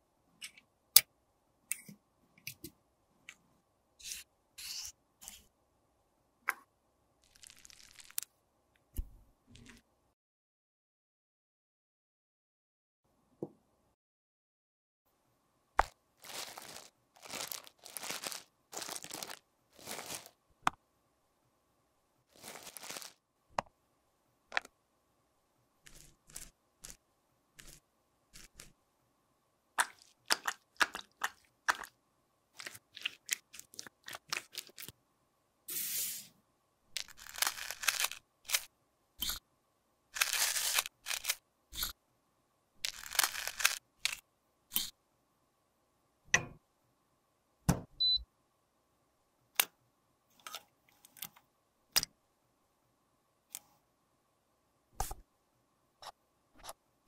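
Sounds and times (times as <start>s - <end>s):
tools clicking and tapping: 46.4s - 46.6s.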